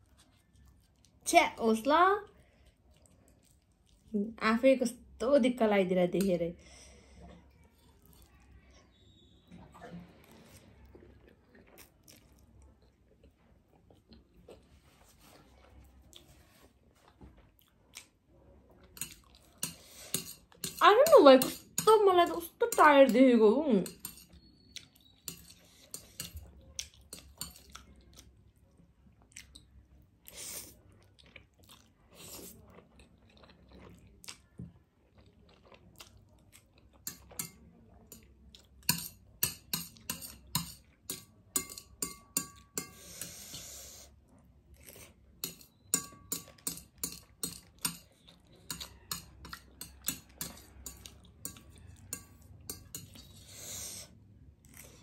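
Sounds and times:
chewing and wet mouth clicks: 0:29.2 - 0:29.8, 0:31.0 - 0:34.5, 0:35.1 - 0:37.4
chopsticks tapping ceramic plate: 0:38.9 - 0:43.0, 0:45.4 - 0:48.1, 0:48.7 - 0:53.2.

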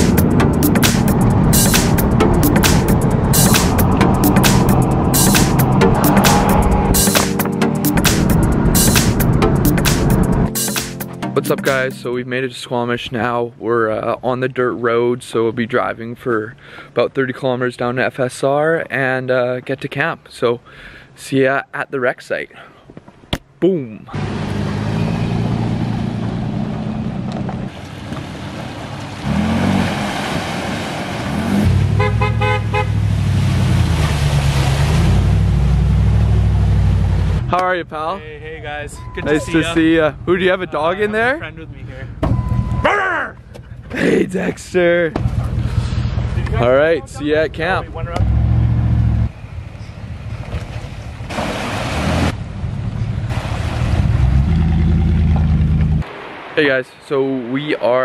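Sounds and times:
truck engine revving: 0:00.0 - 0:11.8, 0:24.1 - 0:37.5, 0:47.6 - 0:49.4, 0:51.3 - 0:56.5
pickup truck engines running: 0:24.2 - 0:37.6, 0:45.1 - 0:51.4, 0:52.0 - 0:56.0
tyres splashing through water: 0:27.6 - 0:36.0, 0:50.2 - 0:52.4, 0:53.3 - 0:56.7
truck horn short toots: 0:31.9 - 0:33.0.

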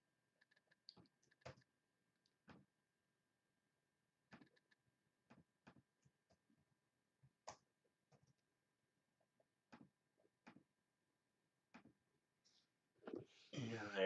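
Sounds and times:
computer mouse and keyboard clicking: 0:00.4 - 0:01.7.

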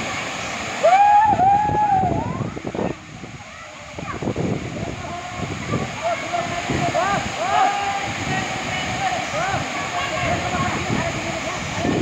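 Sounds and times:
waterfall rushing: 0:00.0 - 0:12.0
long loud shout: 0:00.8 - 0:02.5, 0:05.8 - 0:08.1
voices shouting: 0:05.7 - 0:10.8.

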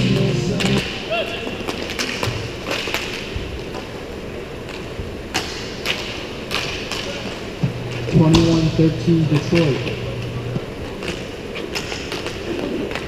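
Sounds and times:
sticks and puck clacking: 0:00.0 - 0:03.9, 0:04.6 - 0:07.4, 0:09.3 - 0:10.3, 0:10.9 - 0:13.0.

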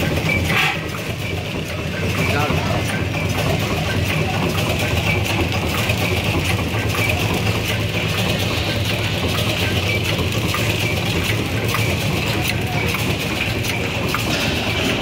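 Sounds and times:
machine hum: 0:06.0 - 0:15.0.

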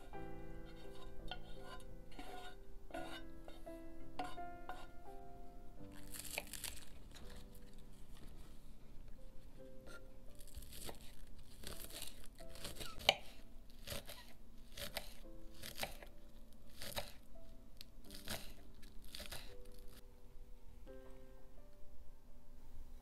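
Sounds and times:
soft background music: 0:00.0 - 0:23.0
knife slicing green onions: 0:00.7 - 0:03.6, 0:06.0 - 0:07.4, 0:09.9 - 0:16.1, 0:16.7 - 0:17.2, 0:18.1 - 0:19.6.

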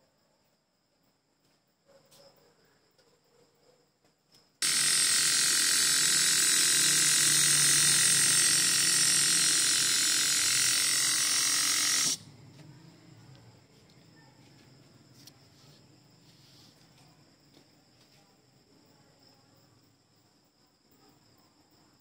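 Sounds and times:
air compressor hissing and buzzing: 0:04.6 - 0:12.2.

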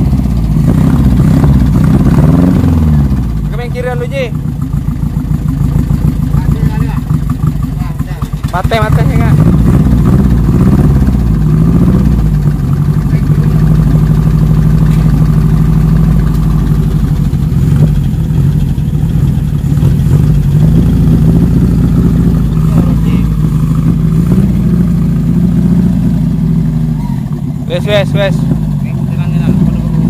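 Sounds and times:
pickup engine revving: 0:00.0 - 0:30.0.

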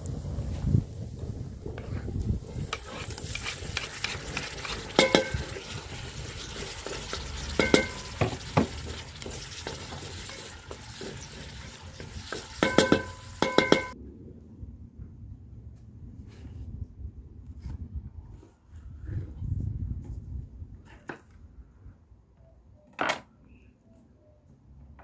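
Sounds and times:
food sizzling in a pot: 0:02.4 - 0:14.0
wooden spoon clanging on pot: 0:04.4 - 0:05.7, 0:06.7 - 0:14.0.

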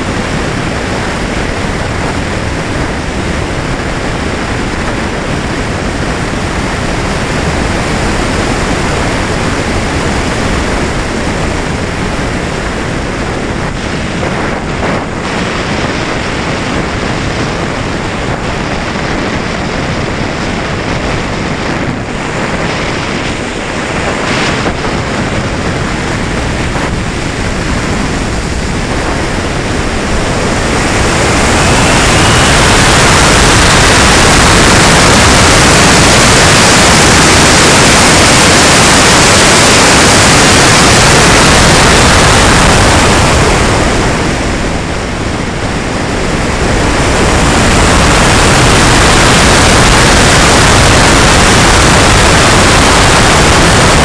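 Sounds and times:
rushing wind noise: 0:00.0 - 0:54.0
faint rising whistle: 0:30.8 - 0:33.5.

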